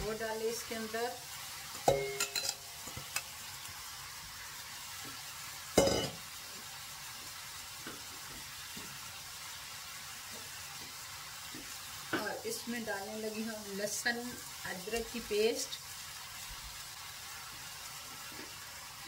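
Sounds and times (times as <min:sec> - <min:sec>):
low hiss: 0:00.0 - 0:19.0
metal bowl knocking on pot: 0:01.8 - 0:03.2, 0:05.8 - 0:06.2.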